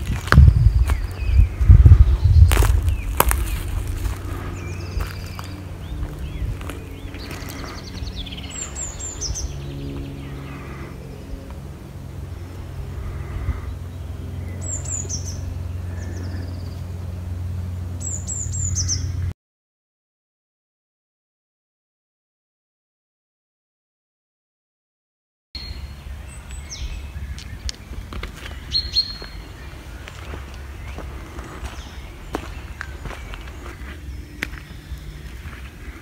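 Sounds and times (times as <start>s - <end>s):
footsteps on dry leaves: 0.0s - 10.9s, 26.4s - 36.0s
steady low hum: 0.0s - 19.4s, 25.6s - 36.0s
small songbird calling: 13.2s - 16.9s, 18.0s - 19.3s, 25.6s - 36.0s.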